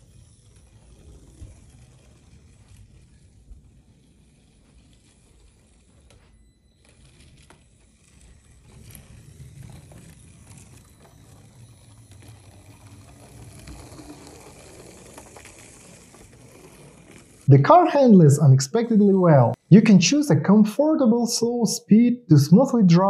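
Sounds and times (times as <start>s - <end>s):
toy car motor whir: 0.0s - 17.5s.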